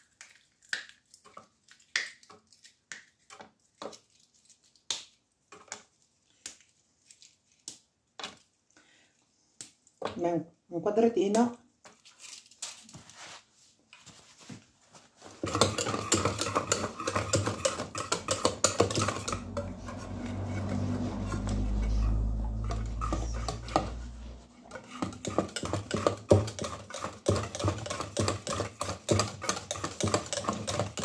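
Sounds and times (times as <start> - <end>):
low rumble: 19.3 - 24.7.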